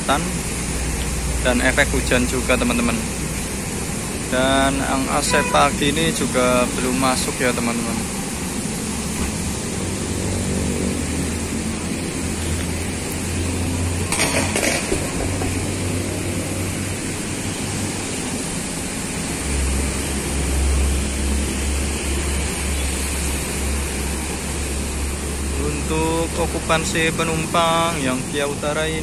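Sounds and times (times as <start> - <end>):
diesel engine idling: 0.0 - 14.2.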